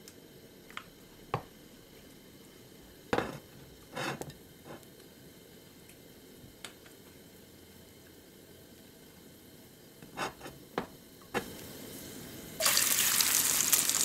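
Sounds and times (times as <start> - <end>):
faint steady hiss: 0.0 - 14.0
utensil scraping frying pan: 3.2 - 4.8, 10.1 - 10.6.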